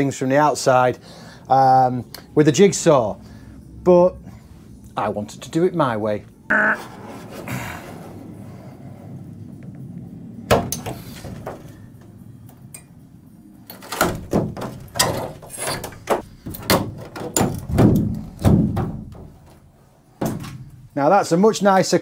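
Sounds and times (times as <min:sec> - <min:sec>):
metal brackets clanking against panel: 0:13.7 - 0:19.6.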